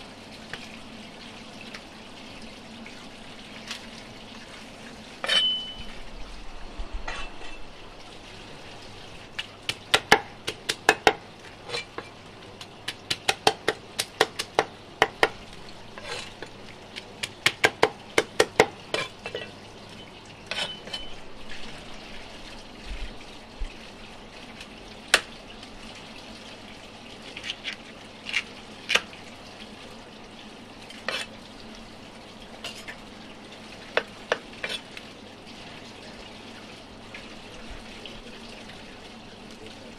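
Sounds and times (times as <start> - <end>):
blade metallic ring: 5.2 - 5.9
cleaver chopping on wooden block: 13.1 - 15.4.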